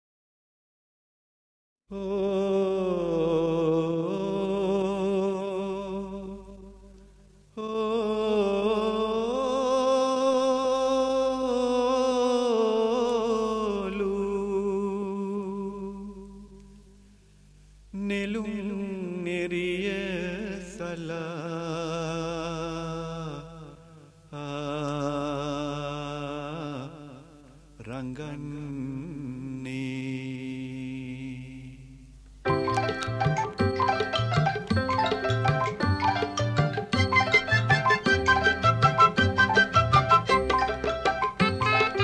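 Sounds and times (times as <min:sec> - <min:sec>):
person humming a melody: 0:32.6 - 0:42.0.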